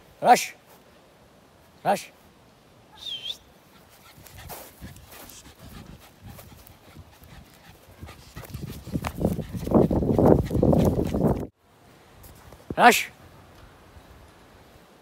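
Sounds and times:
puppy panting: 3.6s - 11.5s.

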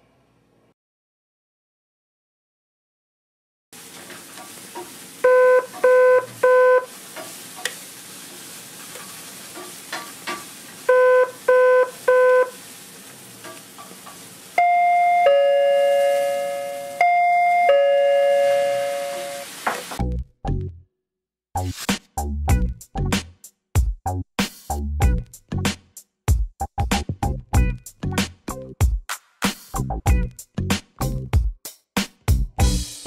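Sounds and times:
two-tone ding-dong chime: 14.6s - 19.5s.

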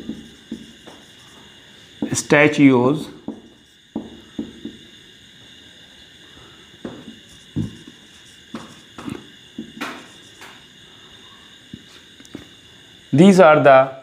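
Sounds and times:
marker writing on whiteboard: 0.0s - 4.9s, 6.8s - 10.6s.

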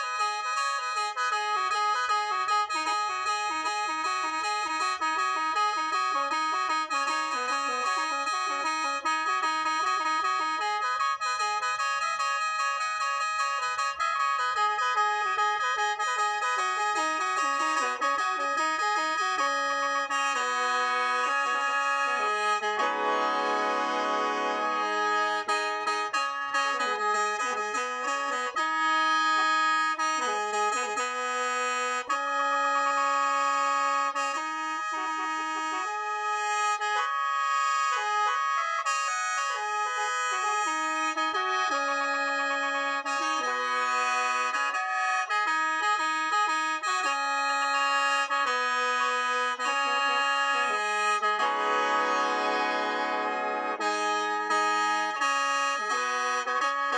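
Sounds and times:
bamboo mouth organ melody: 22.0s - 28.6s, 49.6s - 55.3s.

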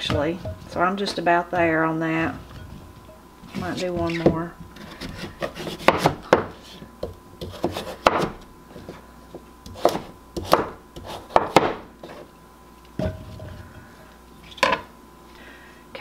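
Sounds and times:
knife chopping on wooden board: 5.0s - 6.5s, 7.4s - 8.4s, 9.7s - 11.8s.

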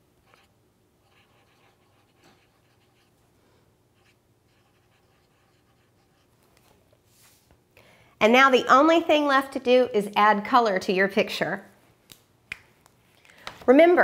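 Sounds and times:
felt-tip marker scratching on paper: 0.2s - 3.1s, 4.0s - 6.4s.

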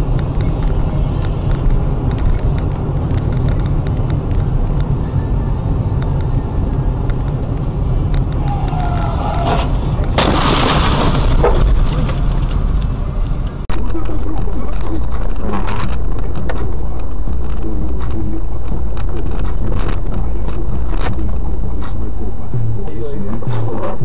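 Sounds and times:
road and engine rumble: 0.0s - 24.0s
tyre squeal: 8.3s - 10.1s
loud car crash: 8.5s - 13.5s.

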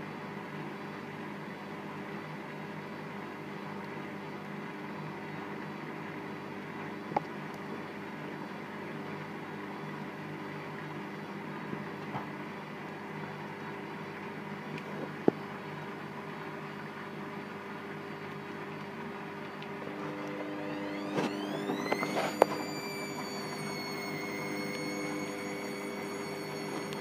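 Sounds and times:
washing machine spinning: 15.6s - 27.0s
rising motor whine: 19.7s - 27.0s.

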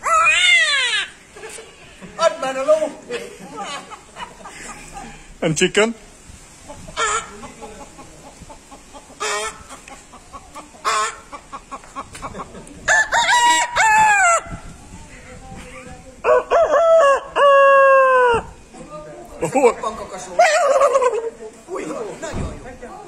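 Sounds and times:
man imitating chicken clucks: 6.7s - 14.4s, 20.4s - 21.4s
man imitating rooster crows: 12.9s - 14.5s, 16.2s - 18.5s.

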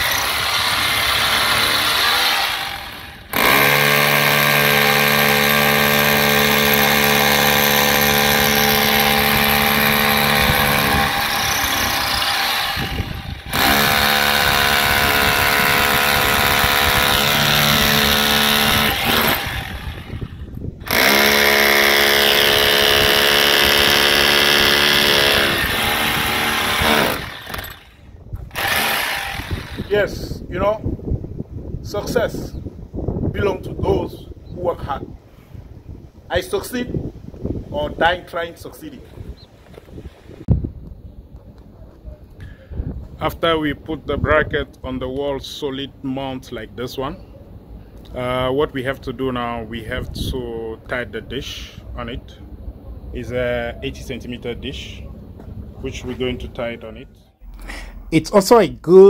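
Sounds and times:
electric drill boring into brick: 0.0s - 27.9s, 28.5s - 29.9s.

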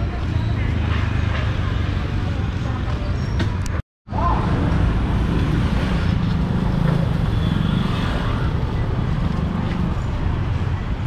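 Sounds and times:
motorbikes passing: 4.2s - 11.0s.

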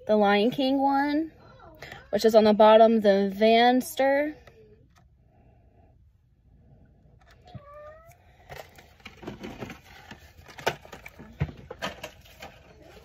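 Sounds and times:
plastic packaging rustling: 8.4s - 13.0s.

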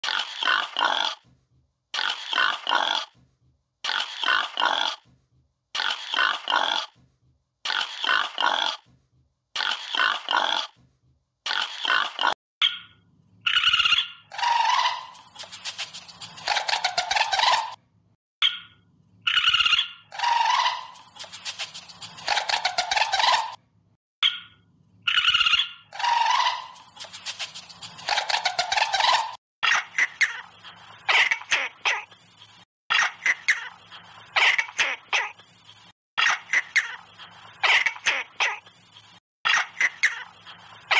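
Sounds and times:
pigs grunting and squealing: 0.0s - 1.3s, 1.9s - 3.2s, 3.8s - 5.1s, 5.8s - 7.0s, 7.6s - 8.9s, 9.6s - 10.8s, 11.5s - 12.4s
animal's long pitched calls: 13.5s - 15.3s, 19.3s - 21.0s, 25.1s - 26.9s.

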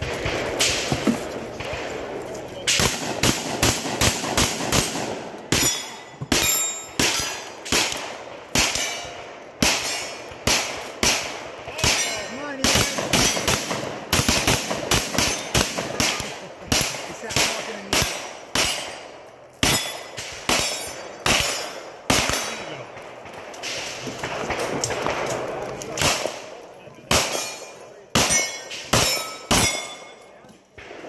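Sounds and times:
rapid gunshots: 0.0s - 26.5s, 27.1s - 29.9s
steel targets clanging: 5.5s - 7.6s, 8.7s - 10.2s, 19.6s - 22.7s, 27.2s - 30.3s.

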